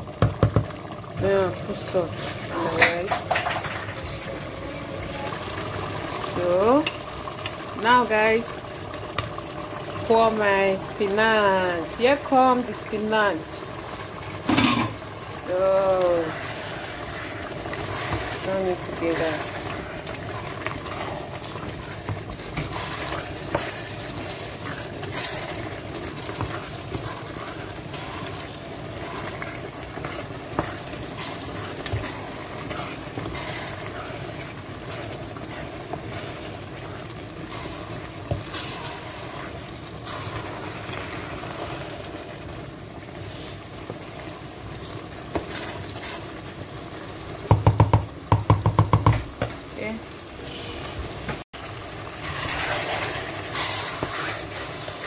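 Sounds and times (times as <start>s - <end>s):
stew sizzling in a pot: 0.0s - 55.0s
spatula knocking and scraping pot: 0.2s - 0.7s, 22.0s - 34.1s, 47.4s - 49.6s.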